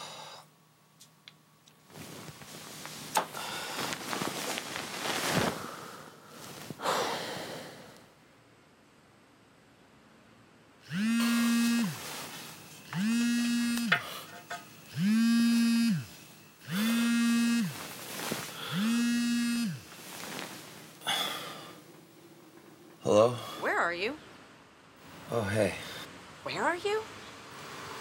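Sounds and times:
mobile phone vibrating: 10.8 - 20.3.

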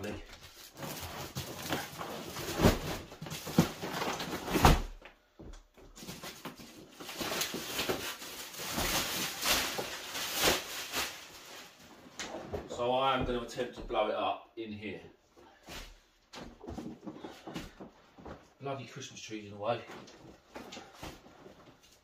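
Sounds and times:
plastic sheet crinkling: 0.0 - 4.9, 6.0 - 12.1
rubbery thumps and knocks: 16.4 - 18.5.

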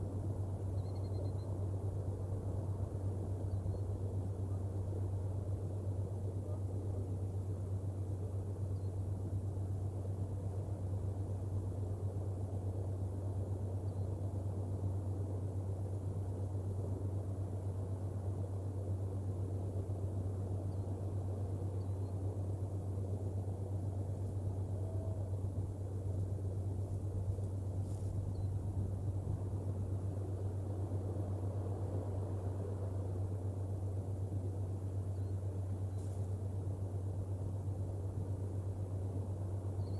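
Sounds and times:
soft rumbling background: 0.0 - 39.9
steady low hum: 0.0 - 39.9
faint high chirps: 0.7 - 1.6.

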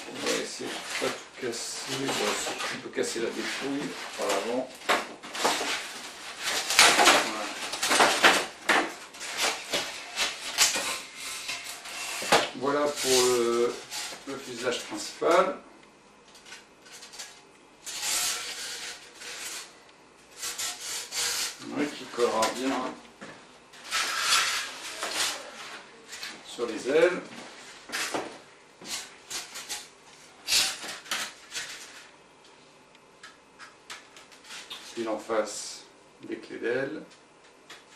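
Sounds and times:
polystyrene foam squeaking: 0.0 - 14.8, 17.8 - 22.8, 23.8 - 26.2, 28.8 - 32.1.

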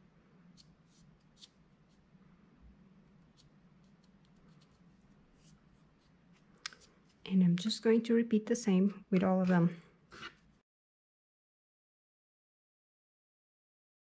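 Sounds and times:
fingers handling paper coil: 0.6 - 2.1, 3.0 - 7.3.

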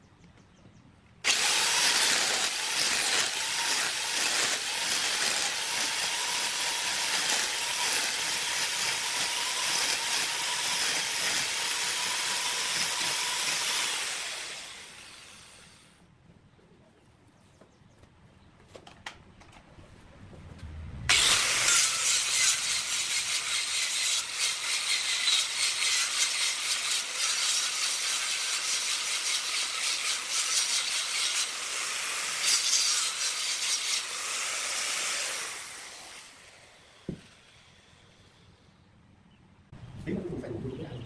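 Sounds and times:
angle grinder sanding wood: 1.3 - 15.7, 21.1 - 37.6.

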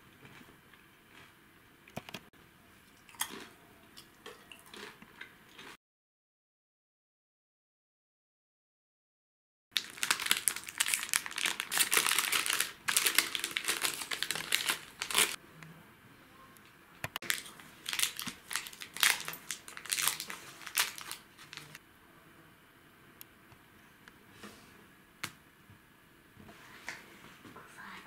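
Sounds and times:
plastic packaging crinkling: 9.8 - 15.4, 17.2 - 21.8.

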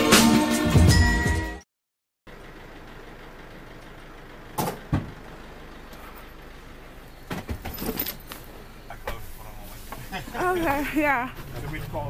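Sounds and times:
van engine hum: 2.3 - 12.0
luggage clatter and rustling: 7.3 - 8.5.

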